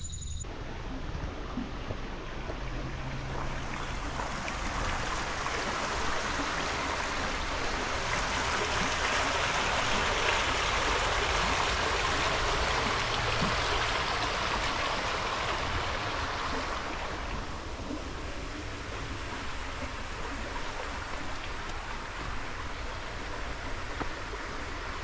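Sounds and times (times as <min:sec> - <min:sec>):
water rushing: 0:00.5 - 0:25.0.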